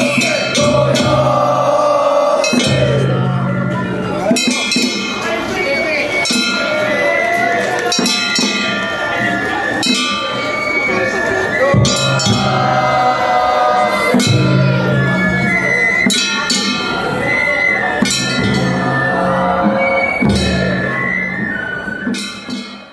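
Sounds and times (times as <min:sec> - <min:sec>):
transverse flutes melody: 0:00.0 - 0:04.6, 0:05.2 - 0:22.9
taiko drum strokes: 0:00.0 - 0:05.6, 0:11.5 - 0:22.9.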